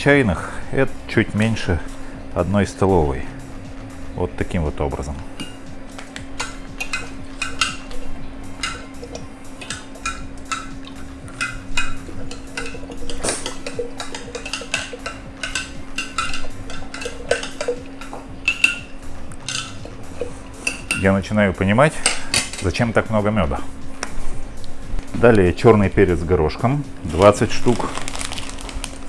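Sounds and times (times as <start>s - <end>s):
metal spoon clinking on glass jar: 11.4s - 19.9s.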